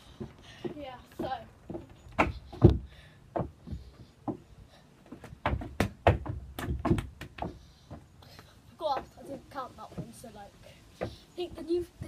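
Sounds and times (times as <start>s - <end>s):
football thudding on wooden decking: 0.2s - 4.4s, 5.0s - 8.0s.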